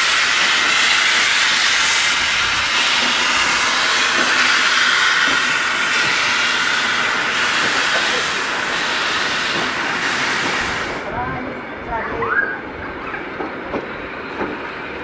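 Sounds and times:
steam locomotive hissing: 0:00.0 - 0:11.6
carriages rolling on rails: 0:00.0 - 0:15.0.

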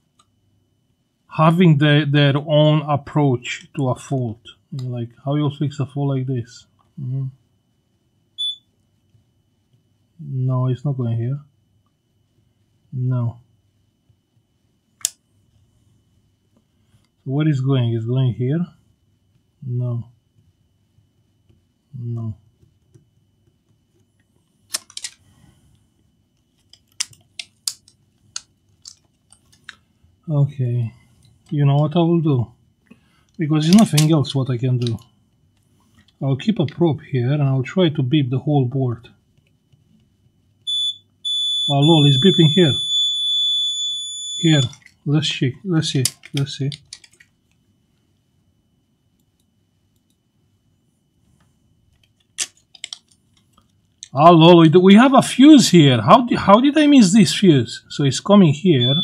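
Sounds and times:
faint high whine: 0:00.0 - 0:09.2, 0:40.6 - 0:46.8, 0:54.1 - 0:59.0
multimeter continuity beep: 0:08.4 - 0:08.7, 0:40.7 - 0:44.8, 0:58.5 - 0:59.0.

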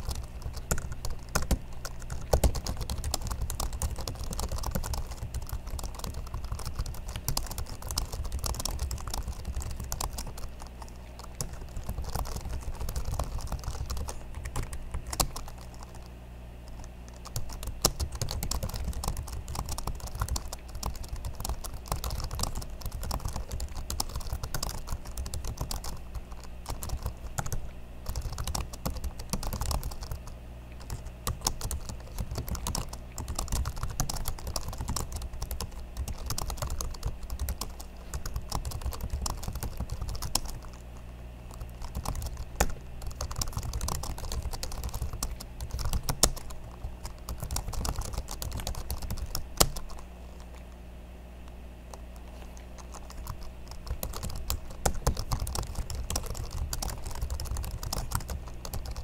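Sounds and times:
fast laptop keyboard typing: 0:00.0 - 0:50.0, 0:51.9 - 0:59.0.

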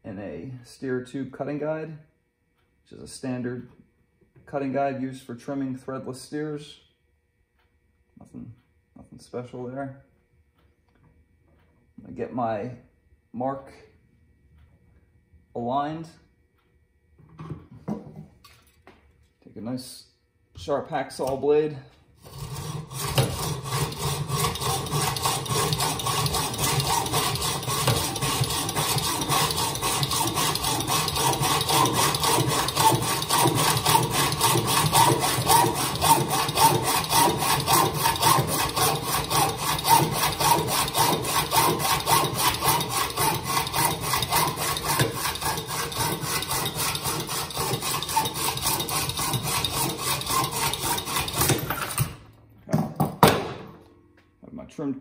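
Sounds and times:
hacksaw cutting metal tube: 0:22.2 - 0:52.2.

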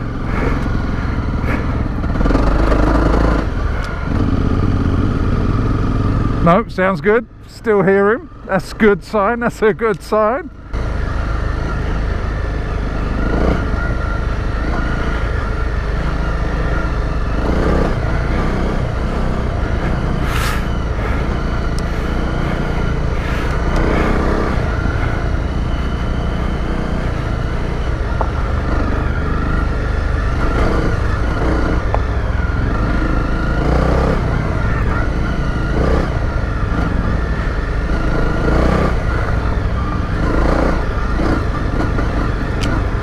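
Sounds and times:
motorcycle engine running: 0:00.0 - 0:43.0.

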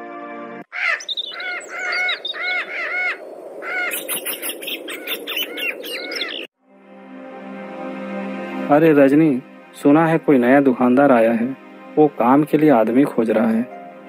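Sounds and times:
birds chirping: 0:00.7 - 0:06.5
parakeets squawking: 0:00.7 - 0:06.5.

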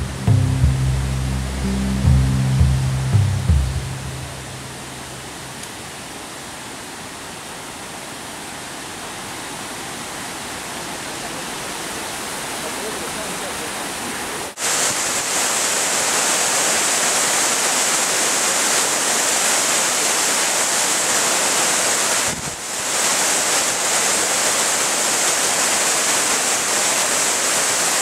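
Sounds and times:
water rushing over rocks: 0:00.0 - 0:28.0
waterfall pouring: 0:14.5 - 0:28.0.

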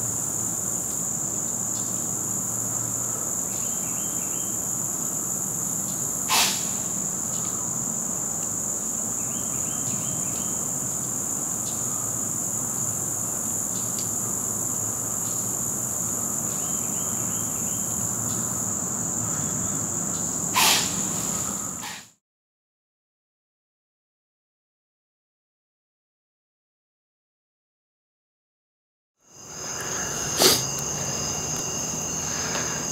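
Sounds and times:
high-pitched insect drone: 0:00.0 - 0:22.1, 0:29.2 - 0:32.9
insects chirping: 0:00.0 - 0:22.2, 0:29.2 - 0:32.9.

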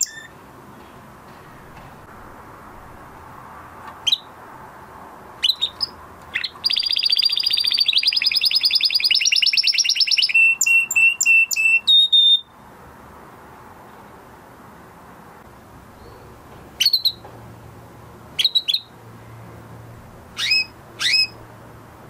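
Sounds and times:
canary singing: 0:00.0 - 0:00.4, 0:04.0 - 0:04.4, 0:05.4 - 0:12.6, 0:16.0 - 0:17.2, 0:18.3 - 0:19.0, 0:20.3 - 0:21.4.

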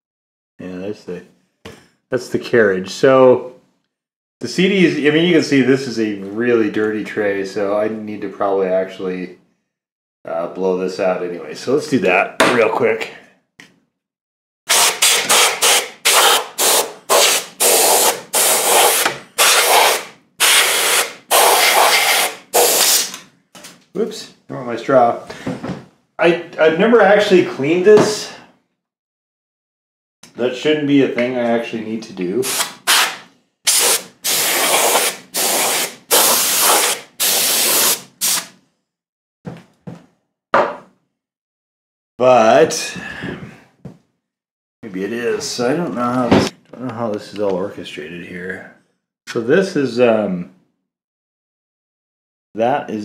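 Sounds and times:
compressed air duster hissing: 0:14.7 - 0:23.1, 0:32.4 - 0:38.5.

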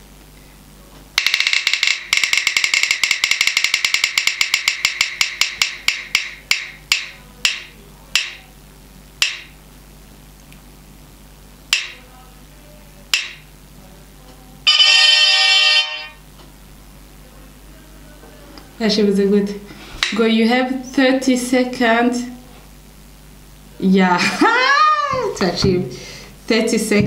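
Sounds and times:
spinning wheel ticking clicks: 0:01.2 - 0:08.4, 0:09.2 - 0:09.5, 0:11.7 - 0:12.0, 0:13.1 - 0:13.4.

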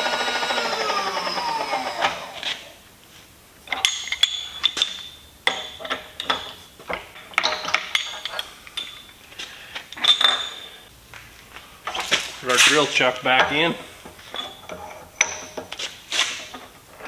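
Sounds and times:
milling spindle whine falling: 0:00.0 - 0:02.4
metallic clinks and knocks: 0:03.7 - 0:09.2, 0:09.9 - 0:10.8, 0:13.4 - 0:15.9.

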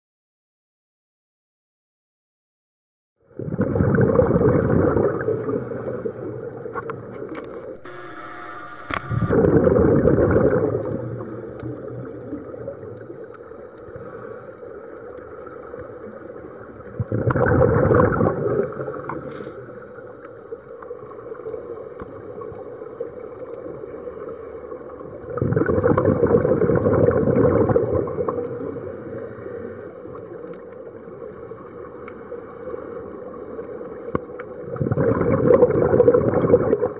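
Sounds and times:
diver bubbles gurgling: 0:03.3 - 0:07.1, 0:09.2 - 0:14.0, 0:15.3 - 0:19.2, 0:25.0 - 0:29.2, 0:30.9 - 0:36.9
low underwater hiss: 0:04.4 - 0:36.9.

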